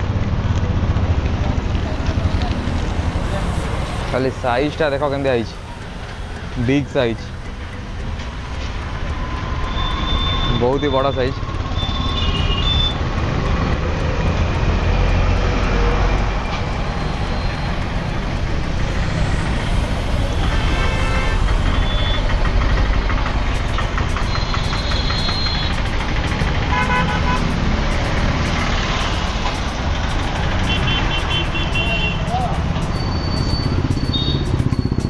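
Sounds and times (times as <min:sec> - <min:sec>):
road traffic rumble: 0:00.0 - 0:35.0
vehicle horn toots: 0:20.4 - 0:21.4, 0:26.7 - 0:27.5, 0:30.6 - 0:32.4.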